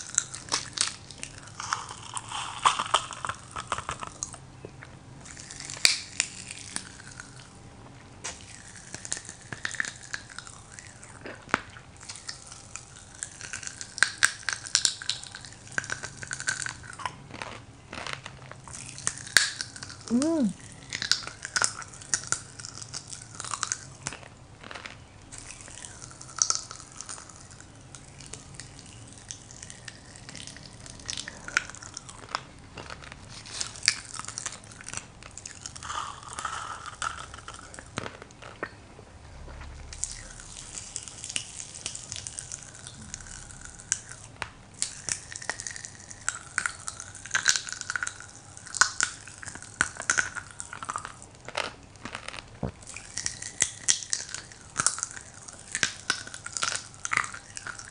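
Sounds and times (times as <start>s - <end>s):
popping candy crackling: 0.0s - 7.6s, 8.2s - 38.8s, 39.9s - 57.9s
mouth and lip sounds: 20.0s - 20.6s
rising vocal reaction: 20.1s - 20.6s.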